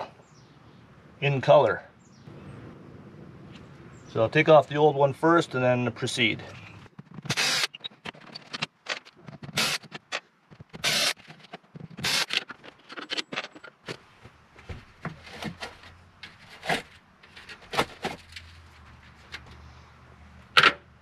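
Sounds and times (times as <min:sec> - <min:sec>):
cordless drill running: 0:07.3 - 0:07.7, 0:10.8 - 0:11.1.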